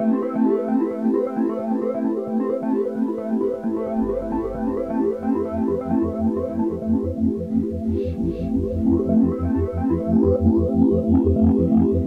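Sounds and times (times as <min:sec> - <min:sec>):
pulsing bass line: 0:03.5 - 0:12.0.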